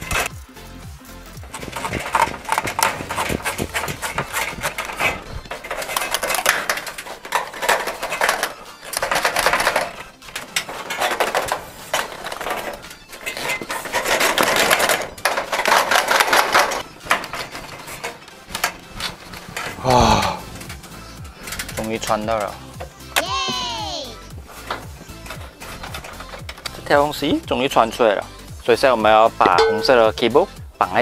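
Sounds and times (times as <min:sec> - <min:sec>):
fish tape scraping in conduit: 0:01.4 - 0:19.8.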